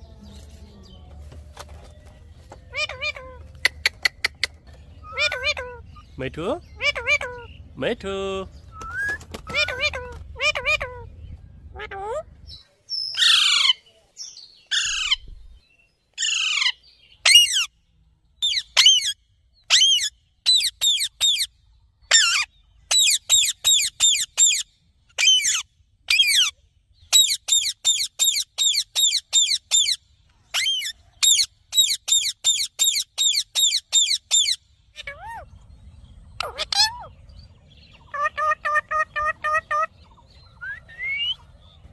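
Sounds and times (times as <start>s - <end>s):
parrot screeching and calling: 2.7s - 3.4s, 5.0s - 6.1s, 6.7s - 7.5s, 9.4s - 11.1s, 13.2s - 13.8s, 14.7s - 15.2s, 16.2s - 17.7s, 18.4s - 21.5s, 22.1s - 24.6s, 25.2s - 26.5s, 27.1s - 35.5s, 36.4s - 37.1s, 38.0s - 39.9s.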